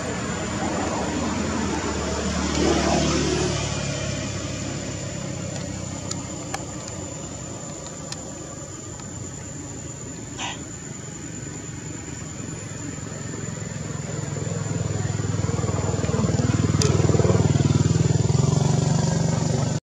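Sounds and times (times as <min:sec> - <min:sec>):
vehicle engine passing by: 0:00.0 - 0:06.5, 0:12.4 - 0:19.8
faint ticks: 0:07.6 - 0:09.6, 0:16.0 - 0:17.0.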